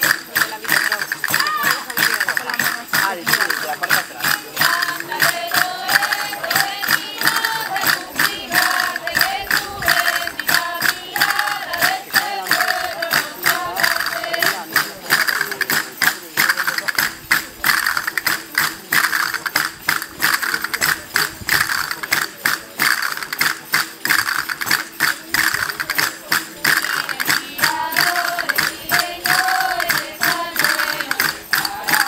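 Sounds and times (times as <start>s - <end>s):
voices singing: 0.0s - 16.4s, 26.0s - 32.0s
hand percussion clacking: 0.0s - 32.0s.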